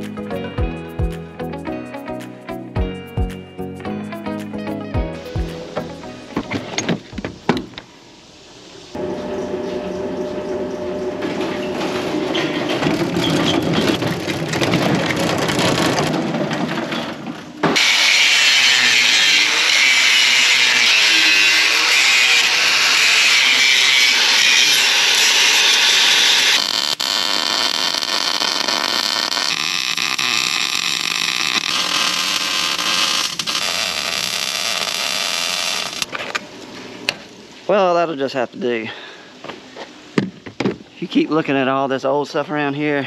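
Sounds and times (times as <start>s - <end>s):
welding and grinding noise: 17.6s - 37.7s.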